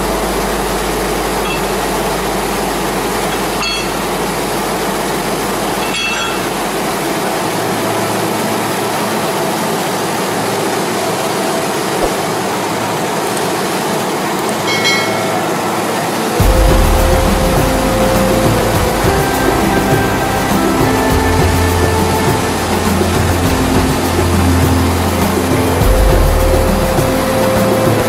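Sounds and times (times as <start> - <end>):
diesel locomotive idling: 14.7 - 28.0.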